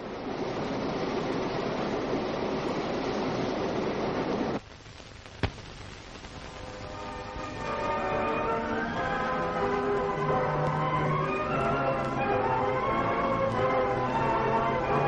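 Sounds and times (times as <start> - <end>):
film soundtrack hiss and crackle: 0.0 - 15.0
sharp pop: 5.4 - 5.7.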